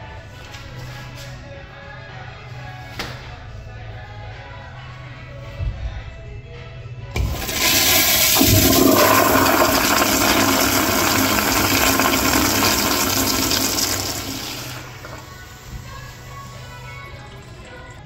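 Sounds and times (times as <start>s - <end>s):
toilet flushing water rush: 7.2s - 18.0s.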